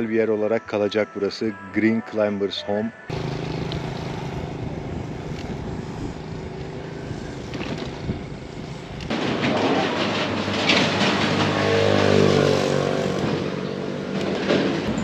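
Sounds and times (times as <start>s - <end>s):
motor humming: 3.1s - 9.1s.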